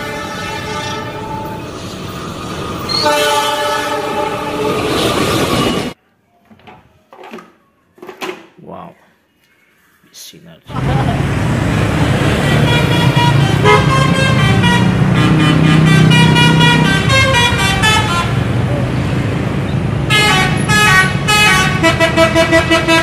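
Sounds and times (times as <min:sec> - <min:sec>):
multi-note musical bus horn: 0:00.0 - 0:01.6, 0:03.0 - 0:04.8, 0:12.3 - 0:18.4, 0:20.1 - 0:23.0
bus engines running: 0:10.7 - 0:23.0.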